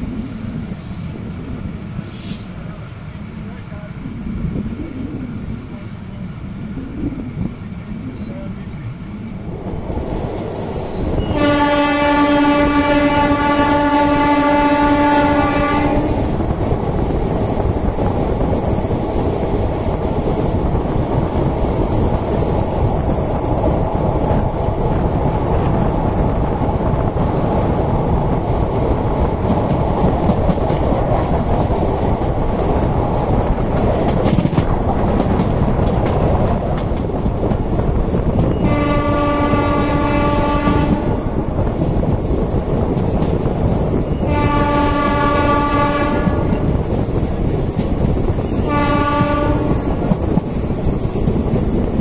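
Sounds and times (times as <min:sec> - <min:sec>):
train rumbling on rails: 0:00.0 - 0:52.0
train horn blast: 0:11.2 - 0:16.3, 0:38.6 - 0:41.2, 0:44.2 - 0:46.6, 0:48.6 - 0:50.0.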